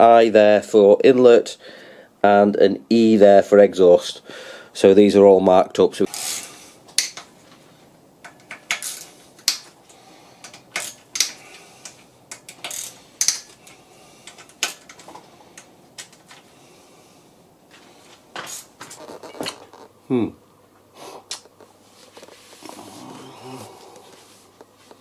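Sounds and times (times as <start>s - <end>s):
hand tools clicking on metal: 8.2s - 16.4s.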